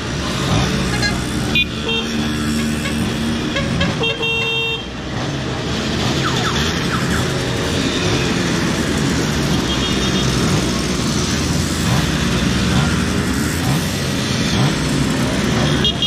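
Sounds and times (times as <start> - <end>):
mopeds and car passing: 0.0 - 16.0
vehicle horn: 0.9 - 5.0, 15.7 - 16.0.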